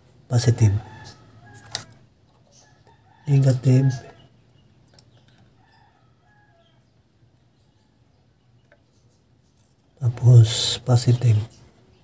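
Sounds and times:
distant rooster crowing: 0:00.4 - 0:04.4, 0:05.5 - 0:06.9.

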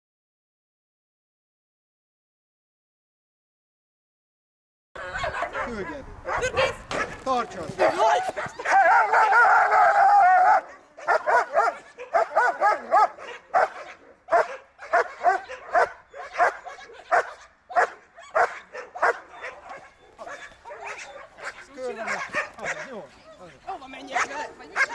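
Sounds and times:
dog barking excitedly: 0:05.0 - 0:07.2, 0:07.8 - 0:23.1, 0:24.1 - 0:24.9.

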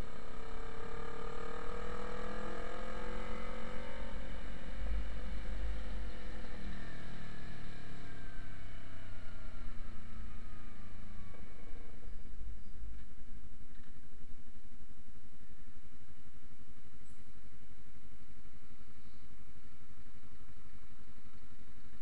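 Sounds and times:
motorcycle engine: 0:00.0 - 0:14.1
low rumble of wind: 0:00.0 - 0:22.0.

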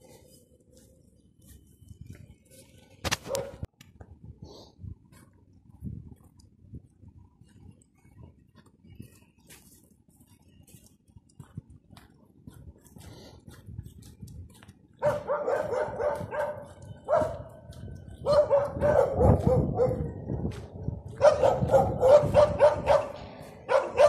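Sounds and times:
dog barking: 0:03.2 - 0:03.7, 0:15.0 - 0:17.6, 0:18.2 - 0:20.2, 0:21.2 - 0:24.0.

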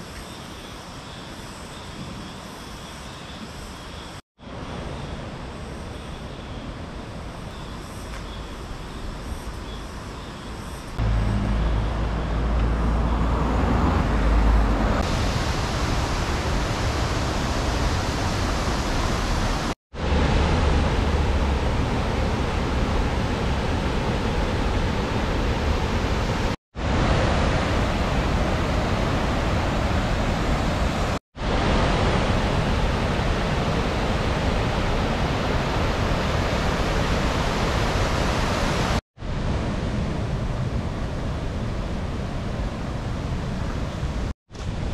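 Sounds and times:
car passing rumble: 0:11.0 - 0:15.2
water rushing over rocks: 0:14.9 - 0:39.0.

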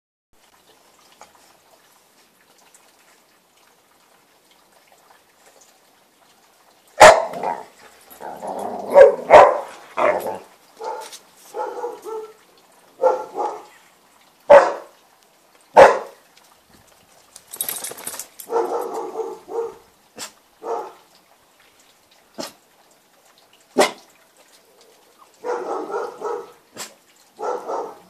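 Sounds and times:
dog barking: 0:07.0 - 0:07.7, 0:08.9 - 0:12.4, 0:13.0 - 0:13.7, 0:14.5 - 0:14.9, 0:15.8 - 0:16.2, 0:18.5 - 0:21.0, 0:23.8 - 0:24.0, 0:25.4 - 0:28.0.

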